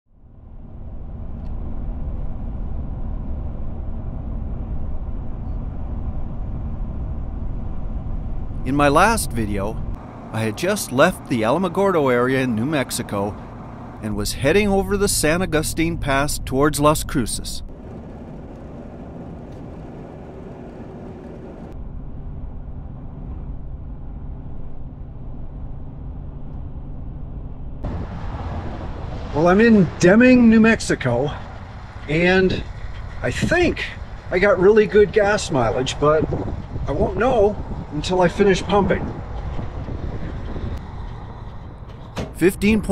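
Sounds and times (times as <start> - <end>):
pickup road and engine rumble: 0.2 - 42.9.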